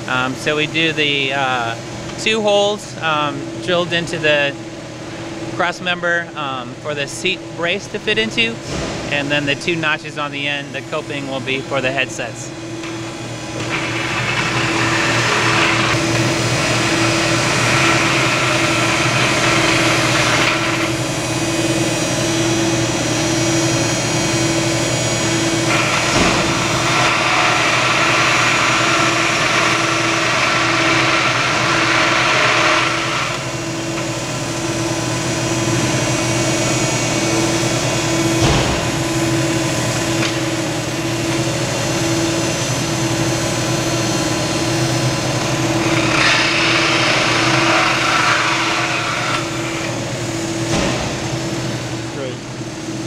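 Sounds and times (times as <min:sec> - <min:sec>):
pulsing hum: 0:07.3 - 0:53.0
cordless drill cutting metal tube: 0:13.6 - 0:36.6, 0:44.5 - 0:50.6.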